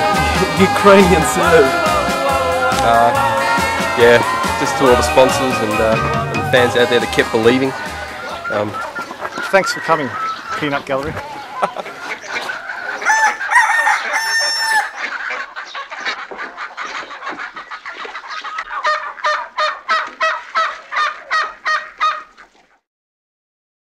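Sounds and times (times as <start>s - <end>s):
chicken clucking: 0.0s - 22.8s
rooster crowing: 1.7s - 9.0s, 12.8s - 15.0s.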